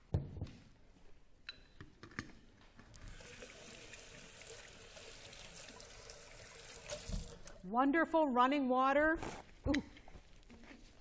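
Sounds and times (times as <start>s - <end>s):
tap water running into sink: 3.0s - 7.6s.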